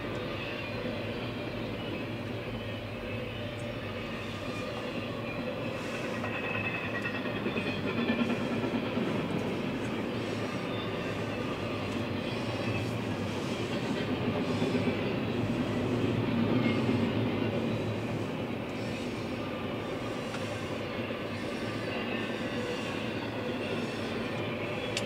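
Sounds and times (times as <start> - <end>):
train wheels rolling on rail: 0.0 - 25.0.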